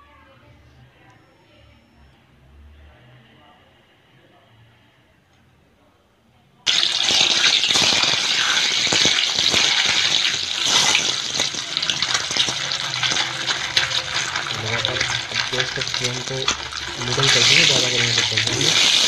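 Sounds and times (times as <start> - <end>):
eggs sizzling in hot oil: 6.7 - 19.0.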